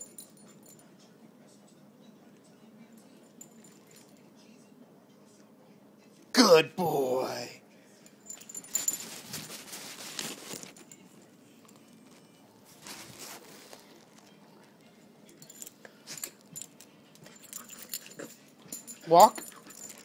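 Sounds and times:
light clicks and jingling: 0.0s - 1.1s, 2.8s - 4.3s, 8.0s - 12.4s, 15.3s - 20.0s
puppy rustling on carpet: 8.6s - 11.0s, 12.0s - 14.4s.

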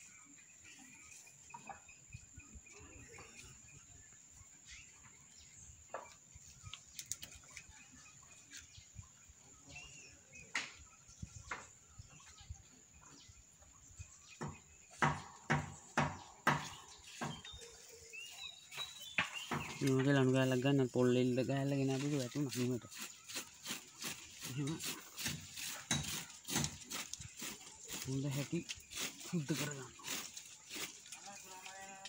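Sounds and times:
bird chirps: 0.0s - 32.0s
palm flowers rustling and knocking: 14.2s - 32.0s
sharp knocks: 14.4s - 17.5s.

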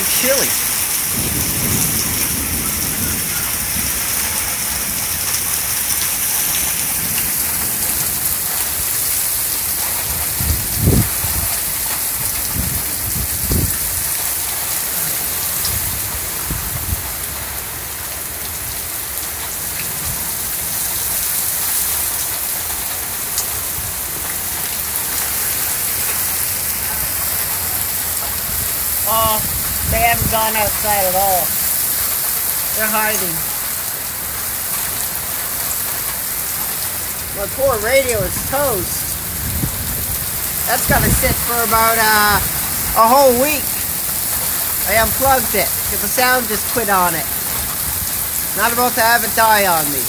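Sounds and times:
low thunder rumbles: 0.0s - 21.1s, 21.9s - 46.1s
heavy rain pouring: 0.0s - 50.0s.

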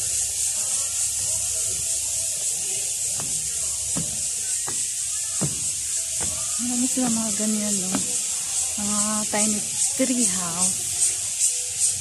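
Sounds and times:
cicada chorus buzzing: 0.0s - 12.0s
soft knocks: 3.1s - 6.9s, 7.8s - 8.2s.

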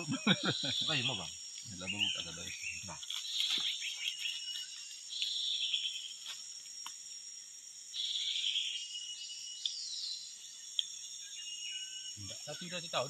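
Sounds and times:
insect buzzing bursts: 0.0s - 9.5s
insects chorus: 0.0s - 13.0s.

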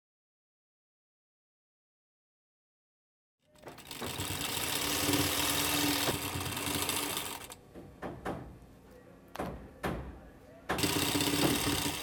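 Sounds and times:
sewing machine stitching: 3.5s - 7.6s, 10.8s - 12.0s.

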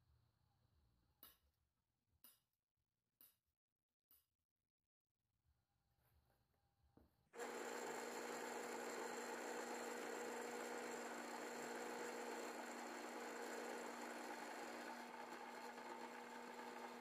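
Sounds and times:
drill press drilling metal: 7.4s - 17.0s.

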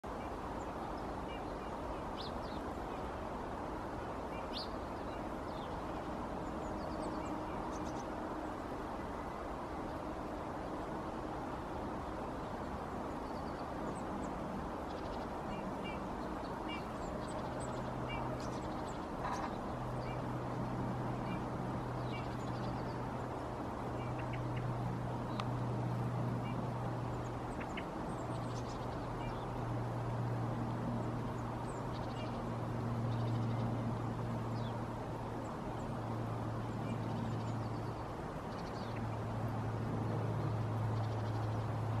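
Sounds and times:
songbirds chirping: 0.0s - 42.0s.

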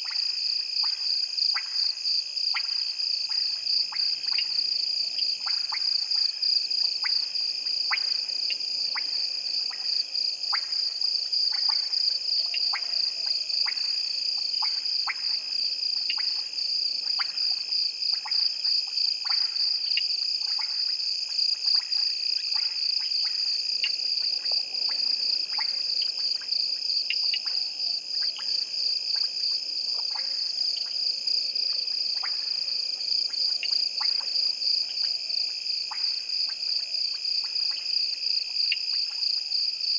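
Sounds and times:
frogs clicking calls: 0.8s - 1.9s, 11.5s - 15.4s, 16.0s - 16.5s, 18.1s - 31.0s, 33.2s - 34.4s.

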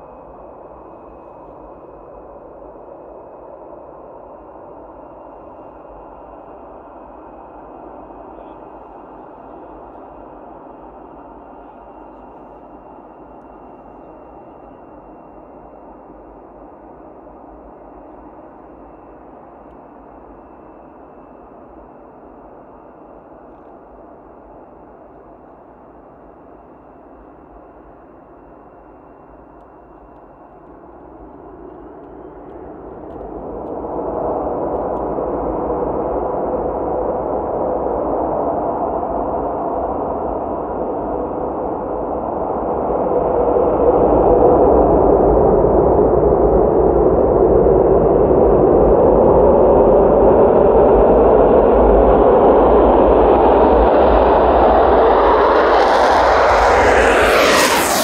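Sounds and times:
jet engine roar: 0.0s - 58.0s
jet engine rushing: 31.2s - 58.0s.

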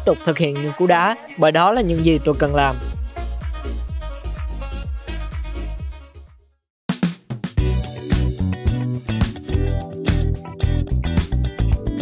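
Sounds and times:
background music: 0.0s - 6.4s, 7.0s - 12.0s
music with drums and bass: 1.8s - 5.8s, 6.9s - 12.0s.

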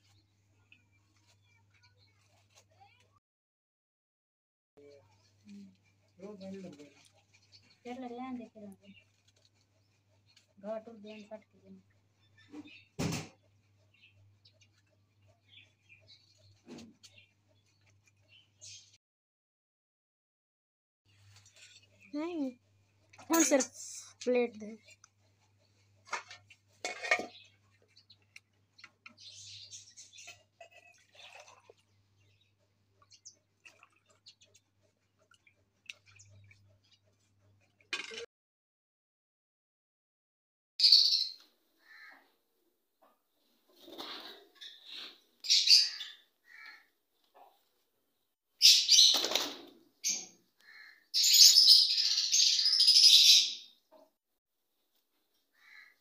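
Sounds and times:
utensils clattering: 26.3s - 27.4s.

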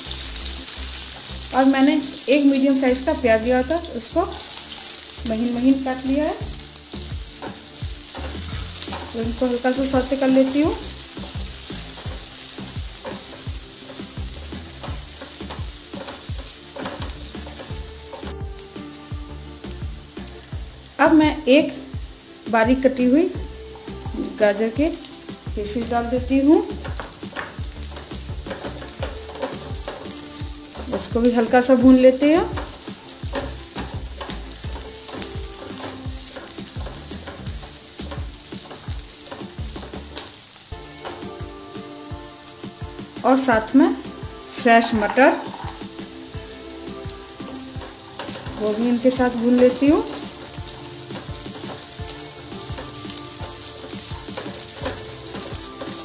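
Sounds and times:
spatula scraping a pan: 0.0s - 19.0s, 24.0s - 56.0s
food sizzling in hot oil: 0.0s - 56.0s.

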